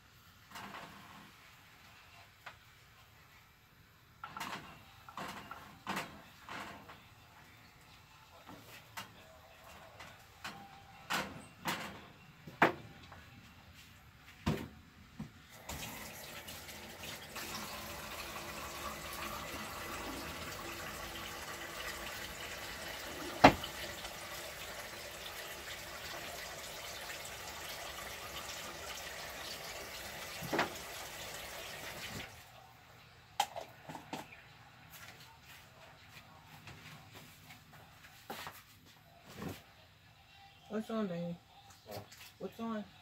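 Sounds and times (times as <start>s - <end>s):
kitchen tap running: 15.6s - 32.4s.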